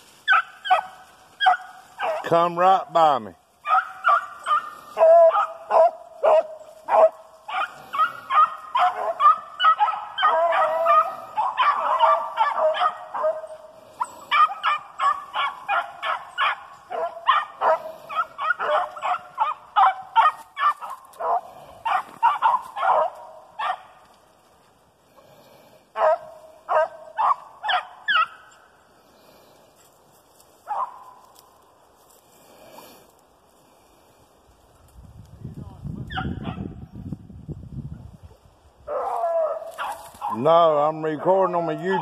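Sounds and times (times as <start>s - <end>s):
hounds barking and baying: 0.2s - 2.4s, 3.6s - 25.3s, 25.9s - 28.9s, 30.5s - 31.5s, 36.1s - 36.7s, 38.8s - 42.0s.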